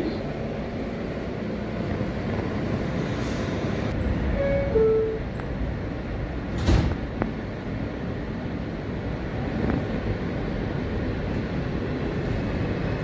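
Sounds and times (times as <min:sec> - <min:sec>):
train low rumble: 0:00.0 - 0:13.0
sliding doors shutting: 0:06.5 - 0:07.0.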